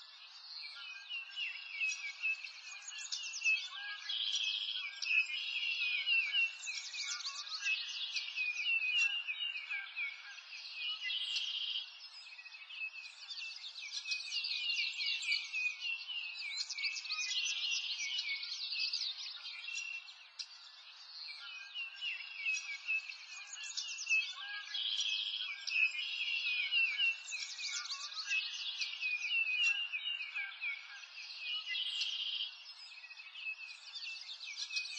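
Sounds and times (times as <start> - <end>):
small birds chirping and trilling: 0.0 - 34.9.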